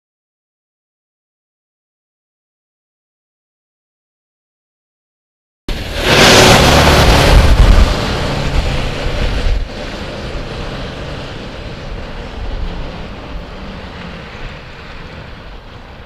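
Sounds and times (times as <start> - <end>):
garbage truck driving off: 5.7 - 16.0.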